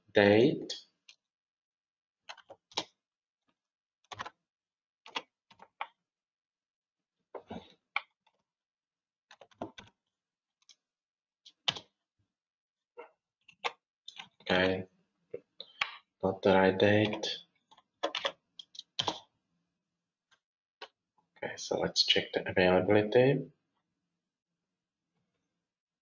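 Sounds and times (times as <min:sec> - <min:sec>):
computer keyboard typing: 0:04.1 - 0:04.3, 0:18.0 - 0:19.2.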